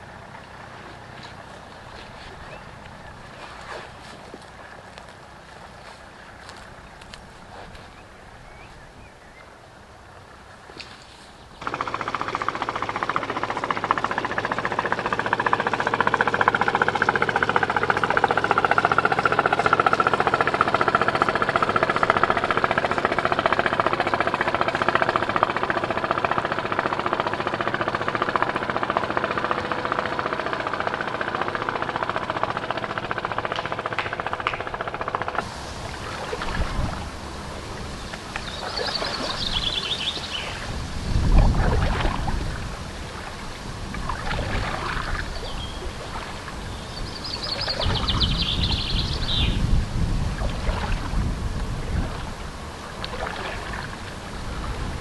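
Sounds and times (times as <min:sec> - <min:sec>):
birds chirping: 0:00.0 - 0:12.0, 0:35.5 - 0:41.1, 0:44.7 - 0:49.8
boat engine running: 0:00.0 - 0:55.0
wind gusts on microphone: 0:35.4 - 0:55.0.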